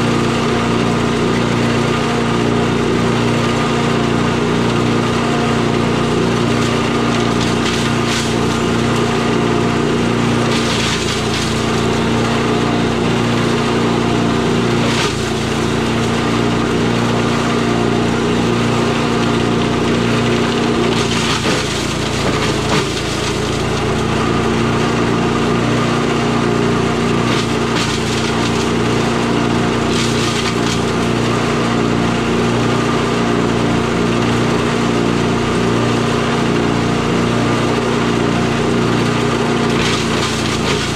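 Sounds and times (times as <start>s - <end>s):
chipper shredder engine running: 0.0s - 40.9s
wood cracking and snapping: 6.5s - 8.4s, 10.4s - 11.7s, 20.9s - 24.0s, 27.2s - 28.7s, 29.9s - 30.9s, 39.7s - 40.9s.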